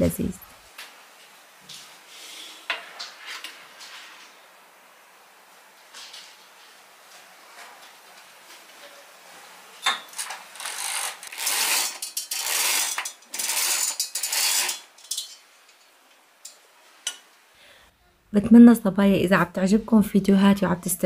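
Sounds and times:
roller blind mechanism rattling: 0:10.1 - 0:16.0.

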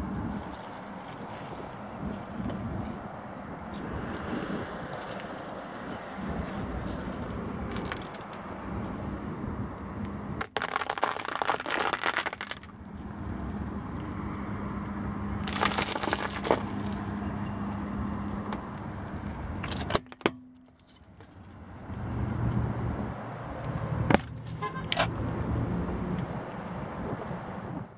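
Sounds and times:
car engine hum: 0:00.0 - 0:10.4, 0:12.4 - 0:27.8
tyre crushing objects on asphalt: 0:06.4 - 0:08.5, 0:10.4 - 0:12.8, 0:15.4 - 0:17.3, 0:24.0 - 0:24.6.

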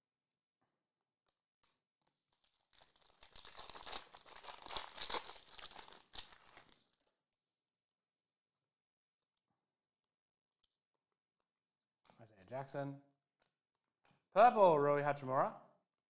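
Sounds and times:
foil wrapper tearing and crinkling: 0:02.3 - 0:07.1.

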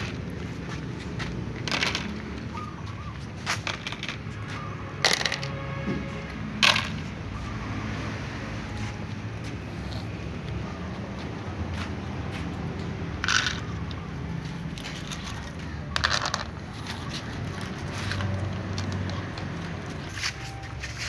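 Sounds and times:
kibble clattering into plastic tubs: 0:00.0 - 0:02.8, 0:03.4 - 0:05.7, 0:06.6 - 0:07.1, 0:13.1 - 0:21.0
cats crunching pellets: 0:12.8 - 0:21.0.

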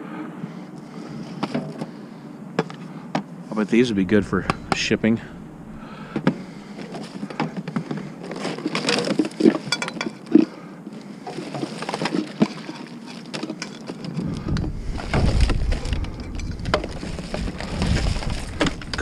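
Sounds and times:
low rumble: 0:03.6 - 0:07.3, 0:14.2 - 0:19.0
hard objects knocking and rattling: 0:06.1 - 0:10.5, 0:11.3 - 0:19.0.

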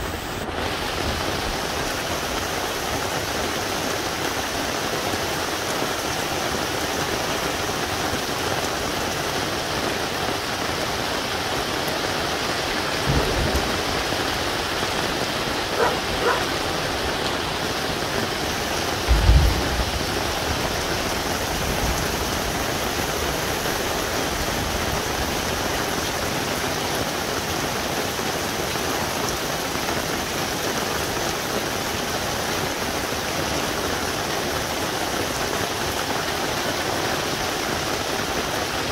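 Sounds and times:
heavy rain falling: 0:00.0 - 0:38.9
thunder rumbling: 0:12.7 - 0:25.6
dog barking: 0:15.7 - 0:16.6.

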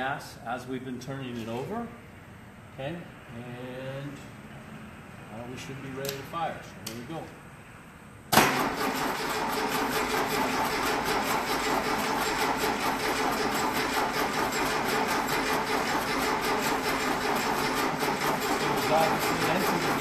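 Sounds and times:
starter motor cranking engine: 0:08.4 - 0:20.0.

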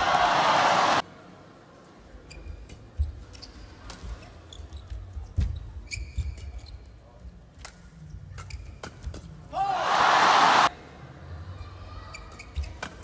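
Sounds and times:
shoes squeaking on court: 0:02.3 - 0:07.0, 0:12.1 - 0:13.0.

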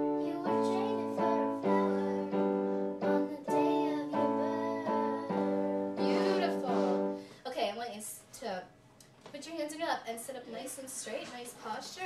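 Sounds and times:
electronic keyboard chords: 0:00.0 - 0:07.2
person singing: 0:00.0 - 0:07.2.

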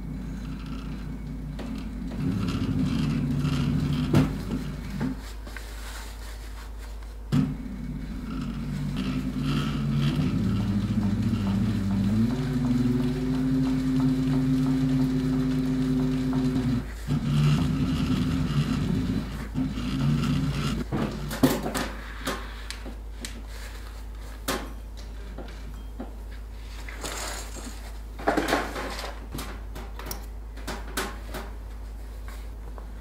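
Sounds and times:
sewing machine stitching: 0:00.3 - 0:05.2, 0:07.4 - 0:20.9.

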